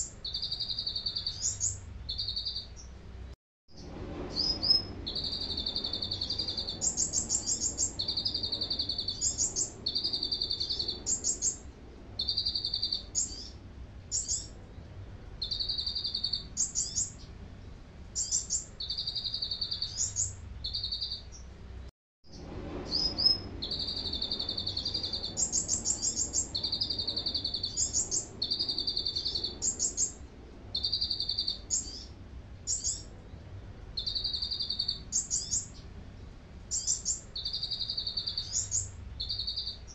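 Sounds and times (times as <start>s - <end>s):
bird singing short trills: 4.4s - 11.6s, 15.4s - 17.2s, 18.2s - 21.4s, 34.0s - 35.8s, 36.7s - 39.9s.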